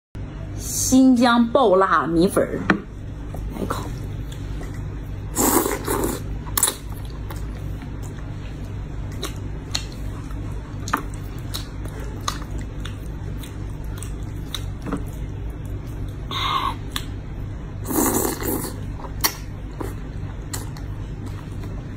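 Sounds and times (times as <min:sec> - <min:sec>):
steady low hum: 0:00.2 - 0:21.9
soft chewing: 0:03.3 - 0:17.3, 0:18.4 - 0:21.9
wet noodle slurps: 0:05.3 - 0:06.8, 0:17.8 - 0:18.9.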